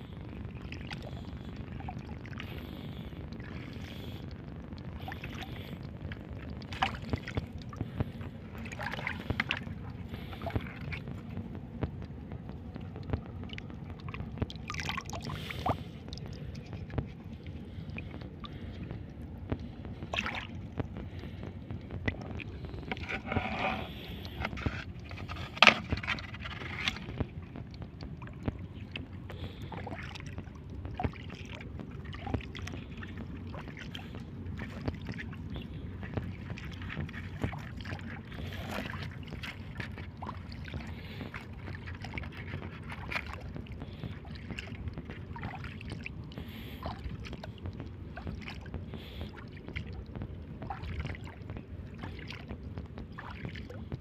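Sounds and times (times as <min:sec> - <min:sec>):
shallow water rumbling: 0:00.0 - 0:54.0
wind: 0:00.0 - 0:54.0
small knocks and sloshes: 0:05.0 - 0:54.0.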